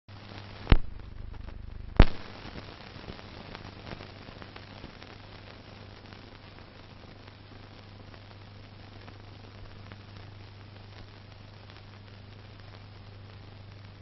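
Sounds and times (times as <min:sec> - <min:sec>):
film clicks and crackle: 0:00.1 - 0:14.0
steady low hum: 0:00.1 - 0:14.0
loud sharp bang: 0:02.0 - 0:02.4.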